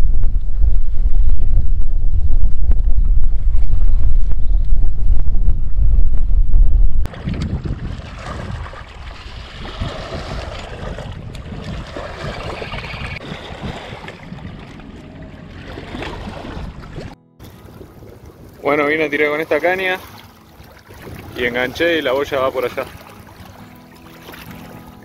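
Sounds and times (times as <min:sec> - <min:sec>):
wind buffeting microphone: 0:00.0 - 0:20.0, 0:20.6 - 0:23.1
river waves lapping on rocks: 0:07.1 - 0:25.0.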